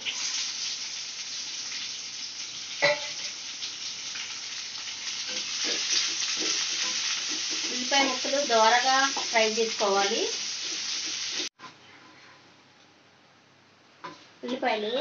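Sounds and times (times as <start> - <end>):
onion sizzling in hot oil: 0.0 - 11.6
wooden spatula stirring: 5.3 - 9.3.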